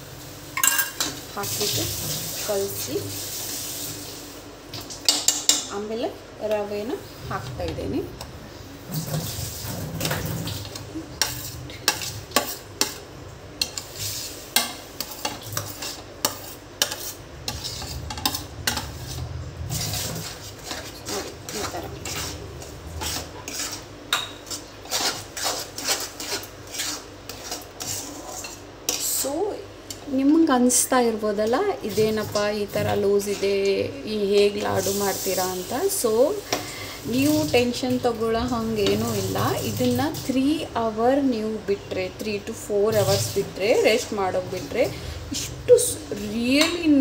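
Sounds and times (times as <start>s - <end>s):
metal spatula scraping metal pan: 8.9s - 13.0s, 13.6s - 29.3s, 38.4s - 40.0s, 42.7s - 47.0s
low hum: 17.3s - 20.3s.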